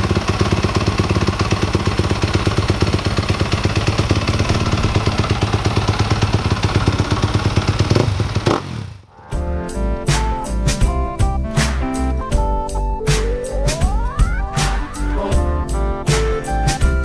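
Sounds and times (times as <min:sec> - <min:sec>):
motorbike engine idling: 0:00.0 - 0:09.0.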